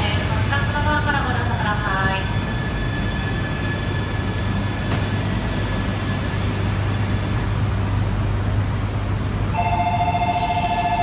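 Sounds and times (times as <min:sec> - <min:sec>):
train rumbling past: 0:00.0 - 0:11.0
two-note electronic tone: 0:09.6 - 0:11.0.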